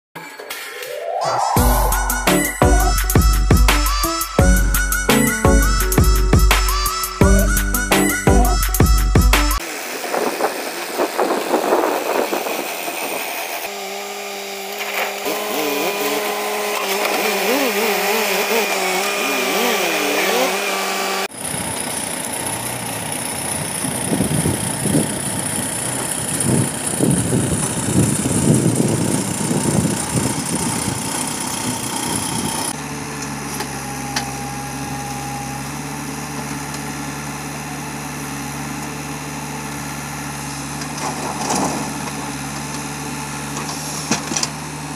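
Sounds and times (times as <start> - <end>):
diesel engines running: 1.6 - 44.9
backhoe digging soil: 10.1 - 44.9.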